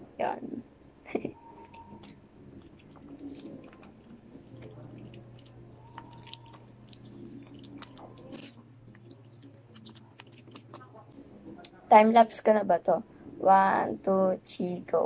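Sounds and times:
slime squishing: 1.6s - 11.4s.

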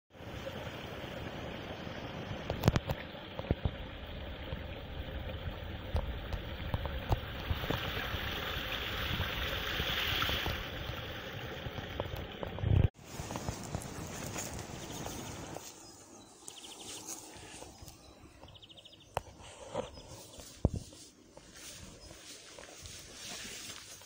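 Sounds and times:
water splashing over stones: 0.2s - 13.9s.

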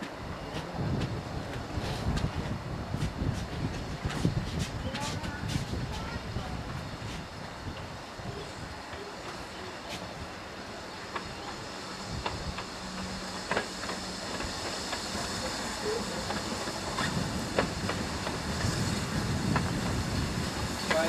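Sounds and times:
steam hissing: 2.9s - 21.0s
wheels clicking over rail joints: 8.8s - 21.0s.

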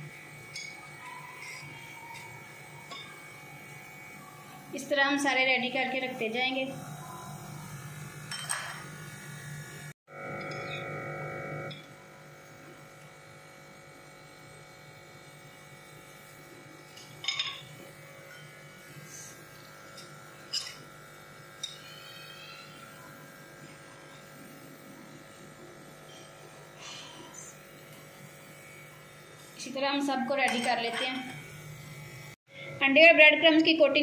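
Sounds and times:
forks clinking against glass dishes: 8.3s - 8.9s, 10.4s - 10.8s, 16.9s - 17.7s, 19.9s - 20.9s, 21.6s - 22.2s, 30.5s - 31.4s.

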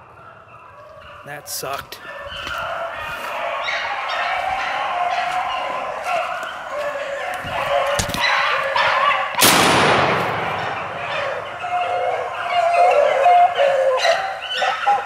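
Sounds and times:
hounds baying: 0.0s - 9.4s, 10.0s - 15.0s
shotgun shot: 9.4s - 11.0s.

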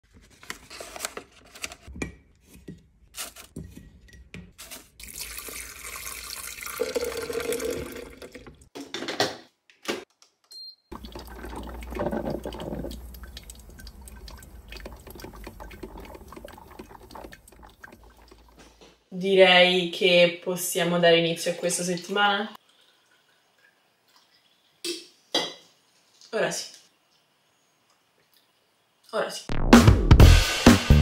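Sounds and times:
paper filter rustling: 0.0s - 1.9s, 3.1s - 3.5s
water pouring: 4.6s - 8.7s, 10.9s - 18.8s
coffee dripping into carafe: 5.0s - 8.5s, 10.9s - 18.6s
coffee maker brewing hiss and hum: 10.9s - 18.4s.

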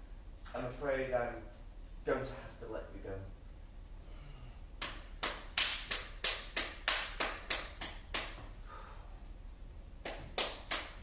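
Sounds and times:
sharp hand claps: 4.8s - 8.6s, 10.0s - 11.0s.

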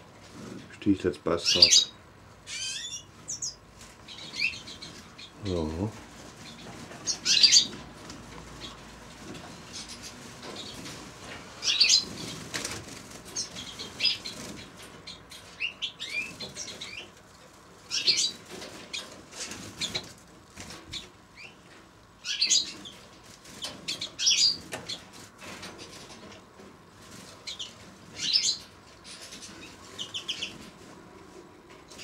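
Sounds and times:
finches chirping: 1.4s - 5.7s, 6.4s - 7.8s, 11.6s - 12.4s, 13.3s - 17.1s, 17.9s - 19.1s, 22.2s - 23.0s, 23.6s - 25.1s, 27.4s - 30.6s
wings fluttering: 2.6s - 32.0s.

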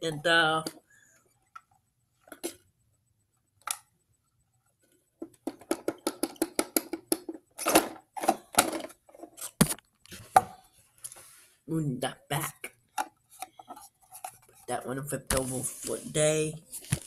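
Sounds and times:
plastic clattering and knocking: 2.2s - 2.6s, 5.2s - 10.6s.

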